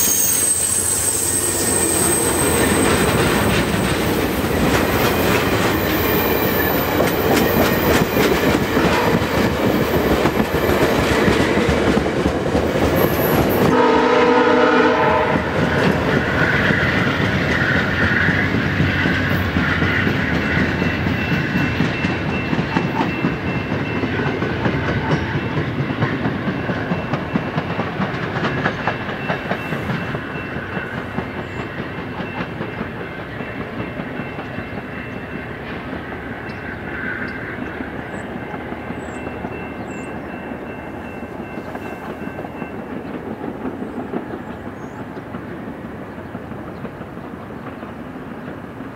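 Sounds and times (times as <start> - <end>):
train coaches passing: 0.0 - 48.9
wheels clicking over rail joints: 2.5 - 13.8, 15.6 - 40.3
train horn chord: 13.6 - 15.7.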